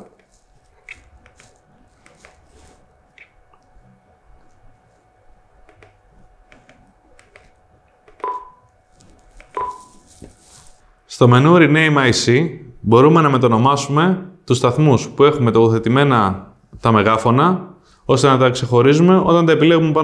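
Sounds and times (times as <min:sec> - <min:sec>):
short beep: 0:08.2 - 0:08.6, 0:09.6 - 0:10.0.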